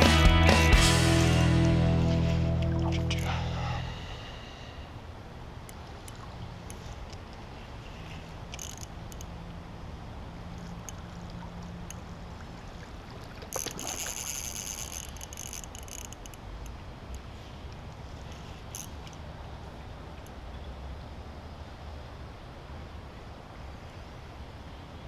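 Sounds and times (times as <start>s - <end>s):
low rumble: 0.0s - 4.4s
creek water running: 1.1s - 4.3s, 5.4s - 15.8s.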